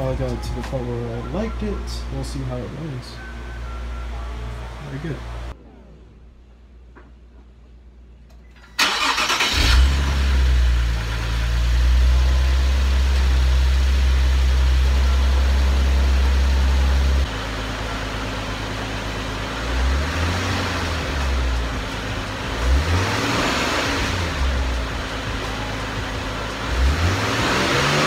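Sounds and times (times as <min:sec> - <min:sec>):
car engine starting and idling: 0:08.3 - 0:28.0
car engine revving: 0:08.8 - 0:28.0.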